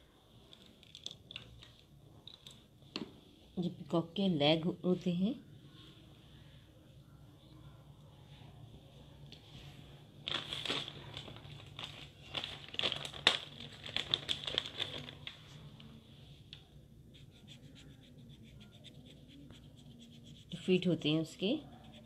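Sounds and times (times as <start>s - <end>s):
crinkly rustling with sharp clicks: 10.2s - 15.6s
pen scratching on paper: 17.1s - 22.0s.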